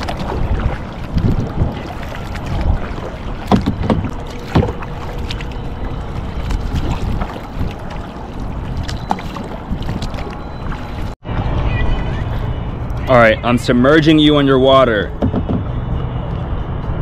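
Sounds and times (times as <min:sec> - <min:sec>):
wind buffeting microphone: 0:00.0 - 0:12.9
kayak paddles splashing: 0:00.0 - 0:15.4
sharp knocks: 0:03.5 - 0:04.8, 0:15.1 - 0:15.7.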